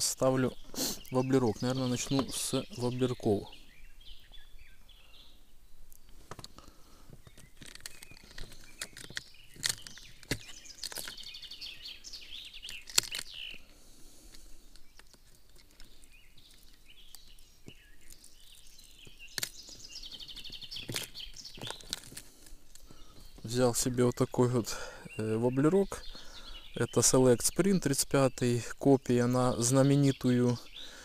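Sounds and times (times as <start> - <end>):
songbird singing trilled phrases: 0.0 - 13.7, 14.8 - 22.0, 22.8 - 31.0
fishing tackle clicks and knocks: 7.2 - 11.4, 12.6 - 13.6, 19.0 - 19.6, 20.3 - 23.4.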